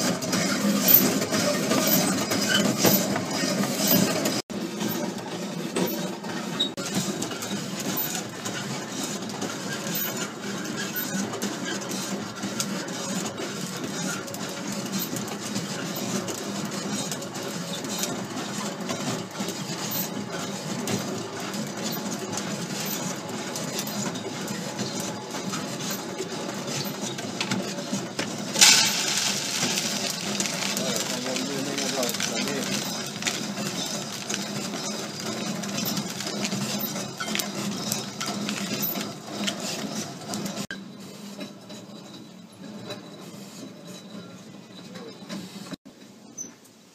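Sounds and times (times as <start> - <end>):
coffee beans rattling in drum: 0.0 - 40.7
beans spilling into tray: 28.6 - 35.1.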